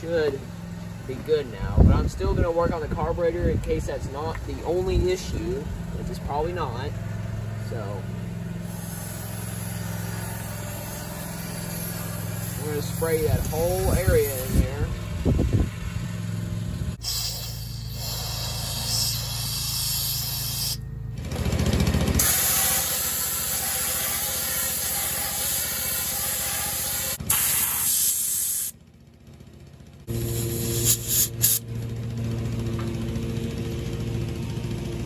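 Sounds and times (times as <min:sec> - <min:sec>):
steady low hum: 0:00.0 - 0:35.0
aerosol spray bursts: 0:08.7 - 0:14.6, 0:17.0 - 0:20.8, 0:22.2 - 0:28.8, 0:30.1 - 0:31.6.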